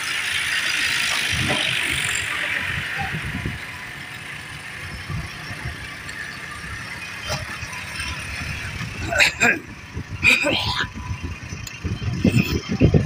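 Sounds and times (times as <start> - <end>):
tractor diesel engine: 0.0 - 13.0.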